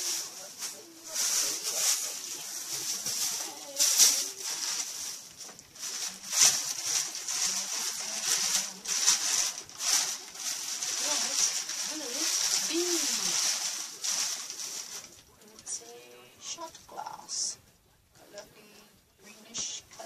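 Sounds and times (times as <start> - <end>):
packaging rustling and crinkling: 0.0 - 15.7.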